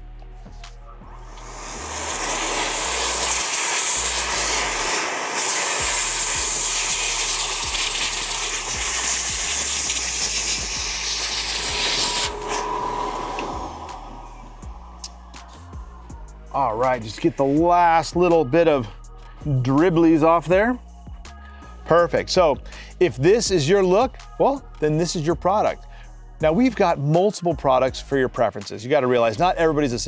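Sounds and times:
blower motor whine: 1.1 - 16.5
air blower rushing air: 1.2 - 17.6.

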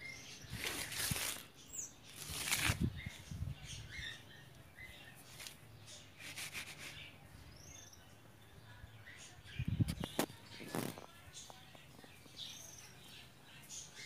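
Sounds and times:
birds chirping: 0.0 - 14.0
rustling: 0.4 - 3.3, 5.1 - 7.2, 9.9 - 11.6.

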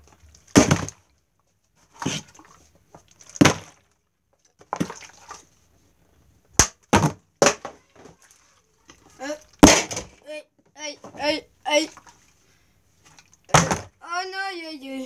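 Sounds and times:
plastic bottle landing on hard surface: 0.5 - 1.0, 3.4 - 3.8, 6.6 - 8.1, 9.6 - 10.2, 13.5 - 14.0.

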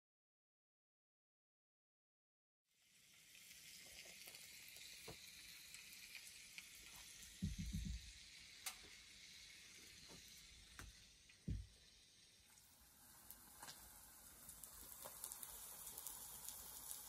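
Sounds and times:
meat sizzling in a skillet: 2.7 - 17.0
low thumps: 7.4 - 8.0.

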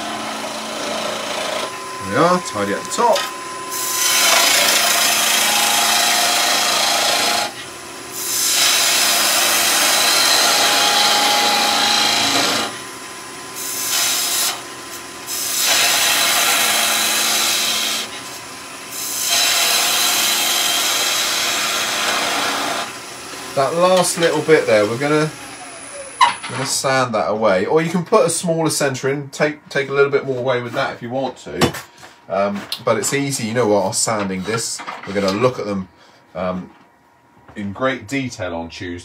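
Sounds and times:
tool cutting wood on lathe: 0.0 - 12.9, 13.5 - 26.6
lathe running hum: 0.0 - 26.6.

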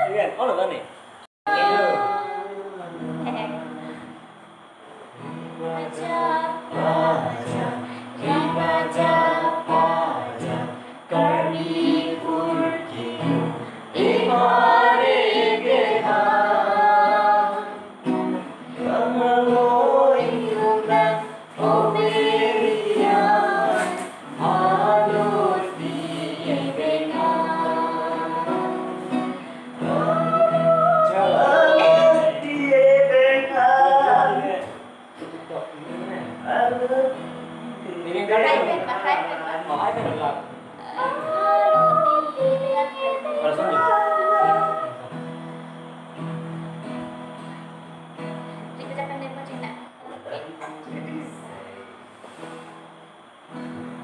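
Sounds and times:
acoustic guitar: 1.0 - 54.0
woman singing: 1.5 - 4.1, 5.6 - 17.8, 20.2 - 32.4, 40.8 - 45.1.

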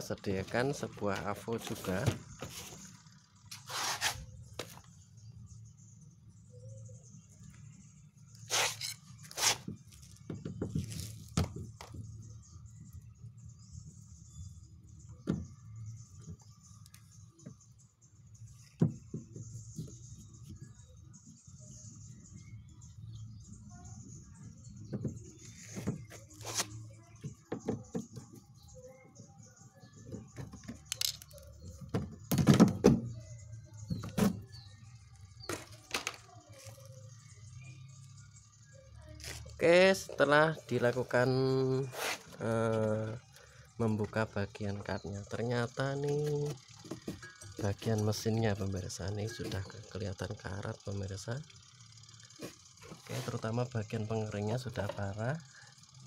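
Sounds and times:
handling scrapes: 3.5 - 4.3, 8.4 - 10.1, 25.5 - 26.9, 41.8 - 42.4.

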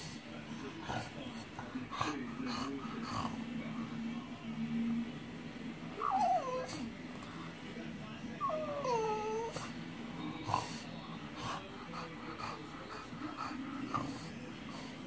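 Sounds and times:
dog whining: 5.9 - 6.9, 8.4 - 9.8.

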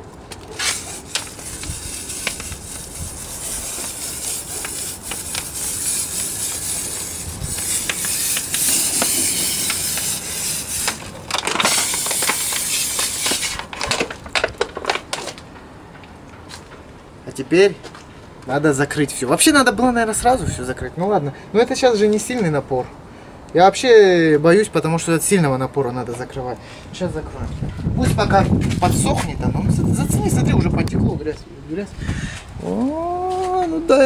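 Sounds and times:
water spray hissing: 0.6 - 13.7.

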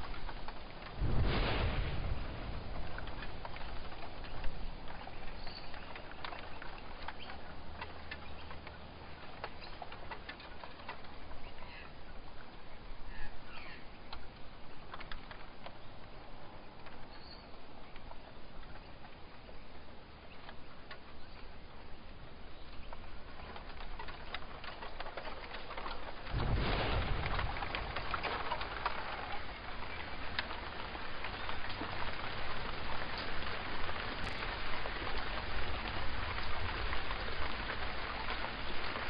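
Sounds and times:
light ticks and patter: 0.0 - 39.0
soft steady hiss: 0.0 - 39.0
faint bird chirps: 5.0 - 7.5, 11.4 - 14.0, 17.0 - 23.0.

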